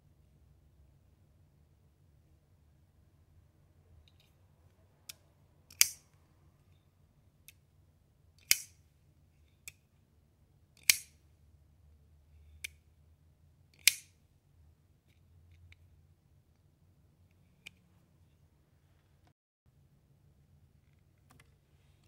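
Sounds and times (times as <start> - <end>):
knife blade snapping open: 10.8 - 11.1
faint knife folding clicks: 10.8 - 11.2.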